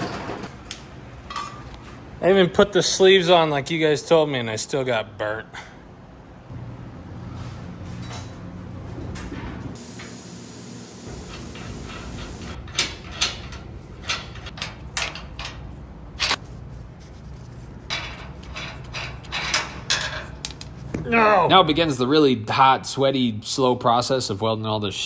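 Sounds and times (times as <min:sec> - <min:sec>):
high hiss: 0:09.8 - 0:12.6.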